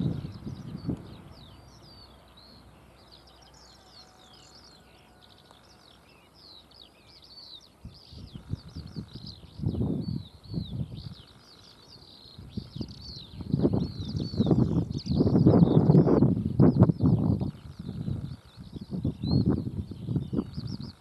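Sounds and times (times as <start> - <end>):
wind buffeting microphone: 0.0 - 2.6, 7.8 - 11.6, 12.2 - 21.0
birds chirping: 0.0 - 21.0.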